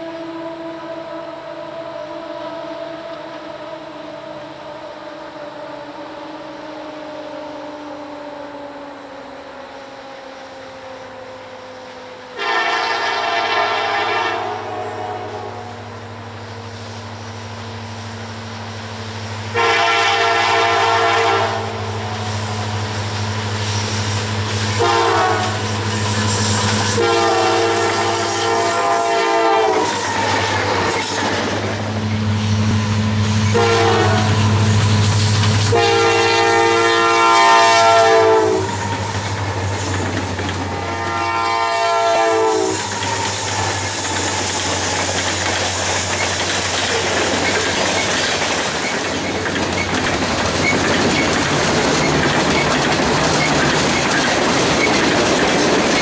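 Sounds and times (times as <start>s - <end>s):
diesel engines droning: 0.0s - 56.0s
locomotive air horn blasts: 12.4s - 15.9s, 19.5s - 22.9s, 24.6s - 30.9s, 33.3s - 39.7s, 40.7s - 44.0s
freight cars clickety-clack: 19.5s - 41.4s, 42.0s - 56.0s.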